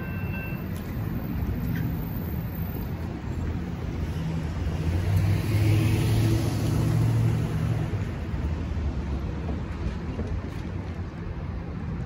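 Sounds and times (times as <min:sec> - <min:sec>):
traffic moving off: 0:00.0 - 0:12.0
car passing by: 0:03.7 - 0:09.2.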